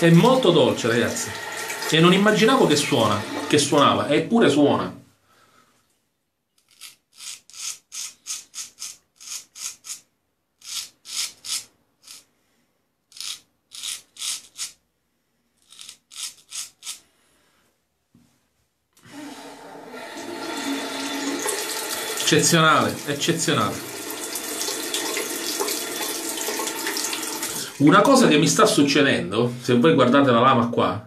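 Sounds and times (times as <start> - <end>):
tap running: 1.0 - 3.9, 19.0 - 23.1, 23.8 - 27.7
razor scraping stubble: 6.6 - 12.2, 13.1 - 14.8, 15.6 - 17.0.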